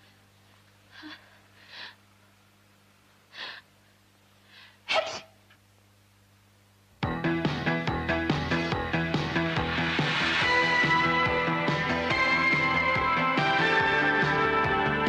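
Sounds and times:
faint low hum: 0.0s - 7.0s
girl gasping breaths: 1.0s - 2.0s, 3.3s - 3.7s
girl sneezing: 4.9s - 5.4s.

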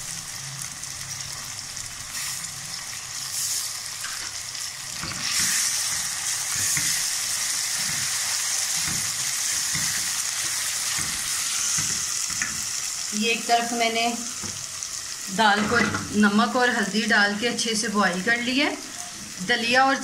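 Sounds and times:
onions sizzling in hot oil: 0.0s - 20.0s
spatula scraping and stirring: 5.0s - 12.7s.

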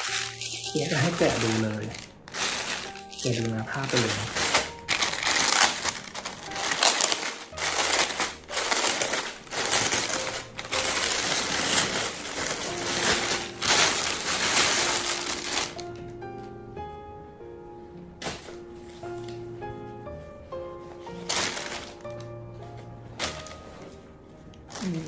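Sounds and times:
plastic packaging crinkling: 0.0s - 16.0s, 21.0s - 22.4s, 23.2s - 23.9s, 24.6s - 25.0s
music: 0.0s - 25.0s.

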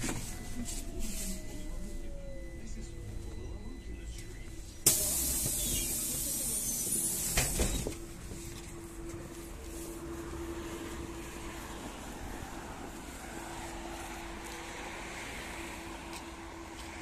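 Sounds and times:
street noise: 0.0s - 17.0s.

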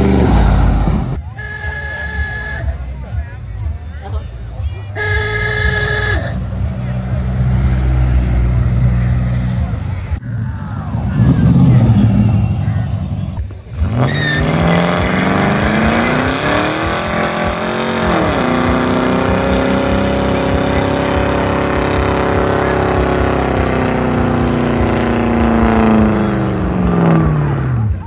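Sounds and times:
tyres spinning on asphalt: 6.4s - 27.1s
car engine revving high: 10.8s - 28.0s.

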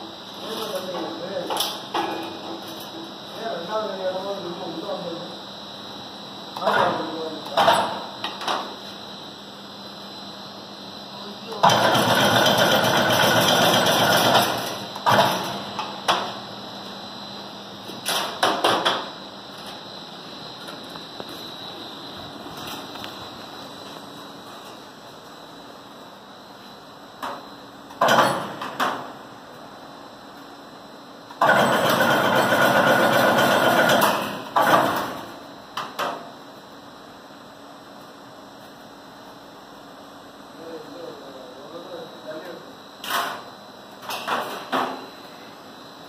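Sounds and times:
fence making machine running: 11.5s - 15.8s, 31.4s - 35.2s.

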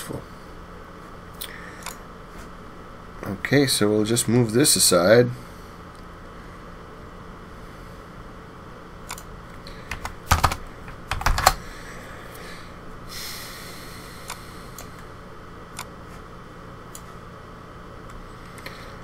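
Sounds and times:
computer keyboard typing: 9.9s - 11.6s.

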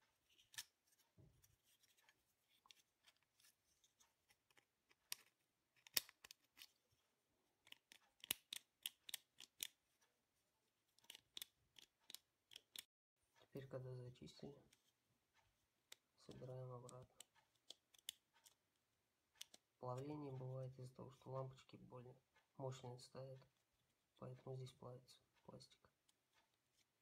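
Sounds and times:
plastic switch parts clicking: 4.5s - 6.8s, 7.6s - 9.8s, 11.0s - 12.8s, 16.9s - 18.6s, 19.4s - 19.7s.

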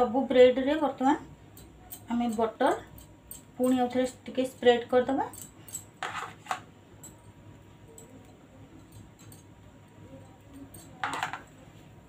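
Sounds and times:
faint steady background: 0.0s - 12.0s
butter knife scraping: 6.0s - 6.6s.

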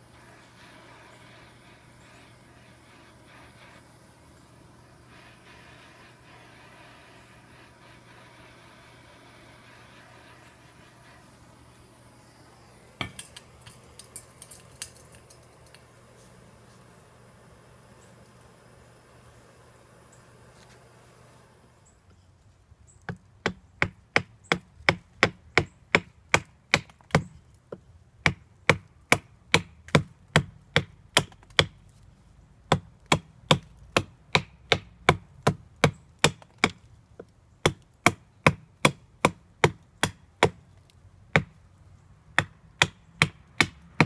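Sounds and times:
axe chopping wood: 23.1s - 27.3s, 28.2s - 31.8s, 32.7s - 36.8s, 37.6s - 40.6s, 41.3s - 41.6s, 42.4s - 44.0s.

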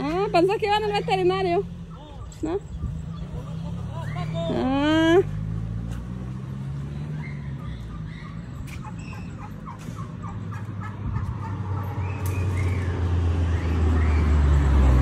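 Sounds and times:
turkey clucking: 1.7s - 4.5s, 7.2s - 12.8s.

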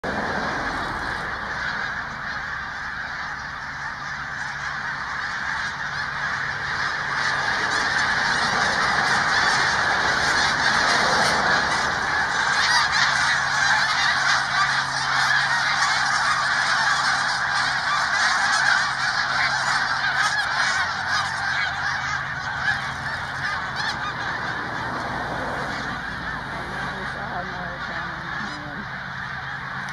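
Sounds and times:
flock of geese calling: 0.0s - 29.9s.

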